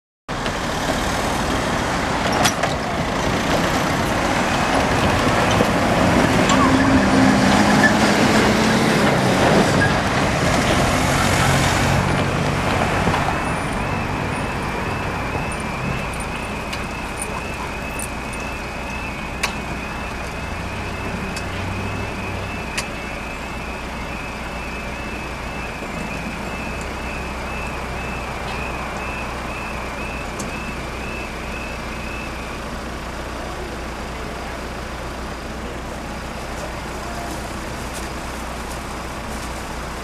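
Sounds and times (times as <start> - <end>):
lorry diesel engine passing: 0.3 - 40.0
level crossing alarm warbling: 4.3 - 9.2, 12.9 - 32.7.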